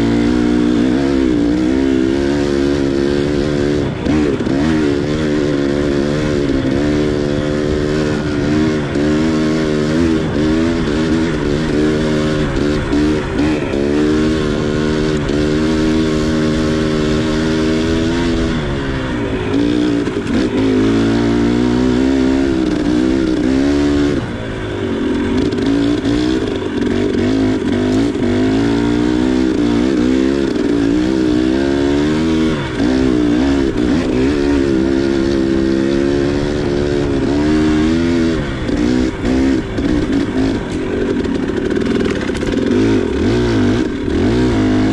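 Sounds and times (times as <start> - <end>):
dirt bike engine revving: 0.0 - 44.9.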